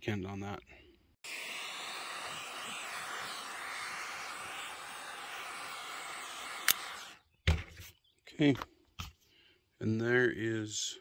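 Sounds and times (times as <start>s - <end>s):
torch flame hissing: 1.2s - 7.2s.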